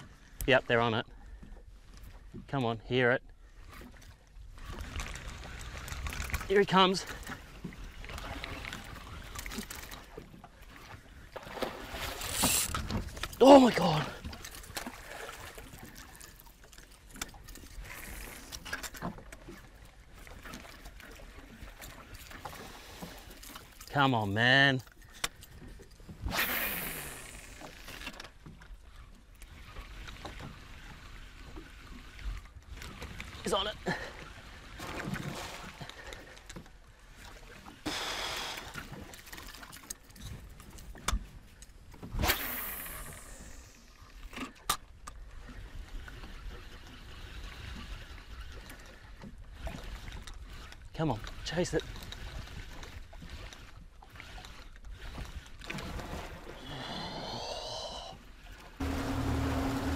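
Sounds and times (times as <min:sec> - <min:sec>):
water lapping against boat hull: 0:00.0 - 0:59.9
sharp water splashes: 0:26.2 - 0:27.7, 0:42.2 - 0:43.7.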